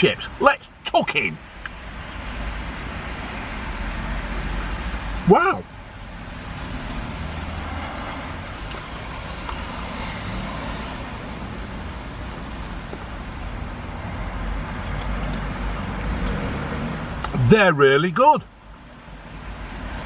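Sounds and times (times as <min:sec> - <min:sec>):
road traffic rumble inside van: 0:00.0 - 0:20.0.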